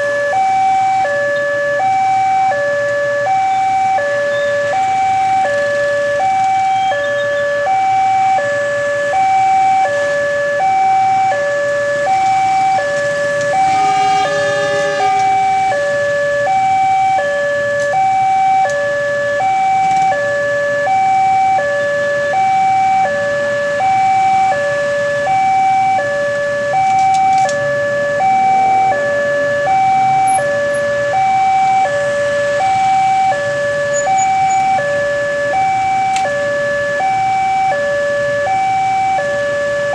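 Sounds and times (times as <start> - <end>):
level crossing two-tone alarm bell: 13.5 - 16.0.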